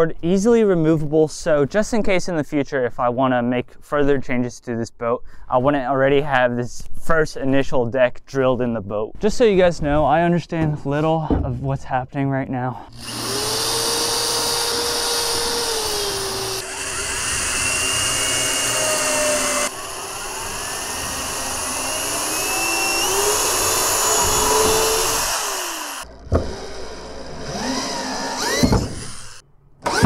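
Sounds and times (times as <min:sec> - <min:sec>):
electric drill boring into wood: 0:12.9 - 0:30.0.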